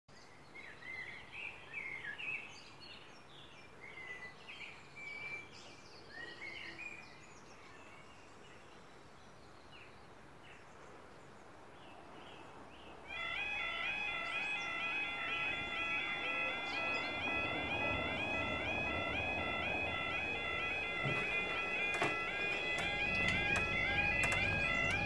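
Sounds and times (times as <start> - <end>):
small birds chirping: 14.0 - 25.0.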